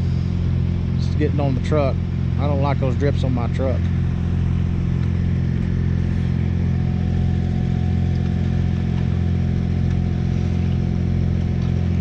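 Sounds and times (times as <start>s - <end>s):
diesel truck engine running: 0.0s - 12.0s.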